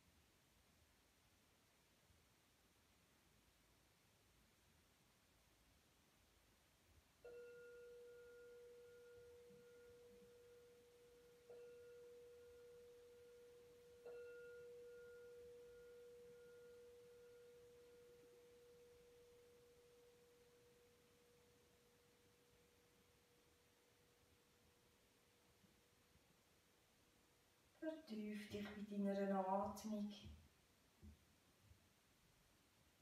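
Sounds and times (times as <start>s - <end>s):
singing bowl ringing tone: 7.2s - 23.4s.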